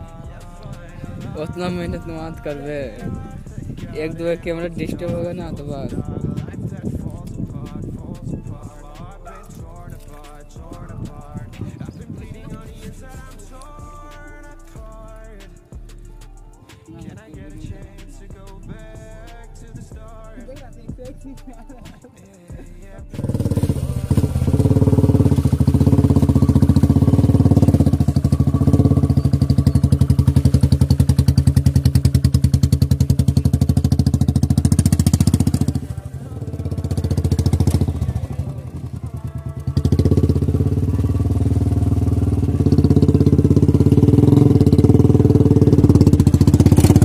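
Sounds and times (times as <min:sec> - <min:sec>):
motorcycle engine under load: 0:23.1 - 0:47.0.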